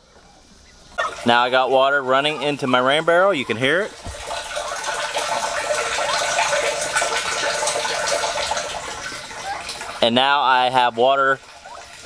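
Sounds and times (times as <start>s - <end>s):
water splashing into plastic barrel: 0.9s - 12.0s.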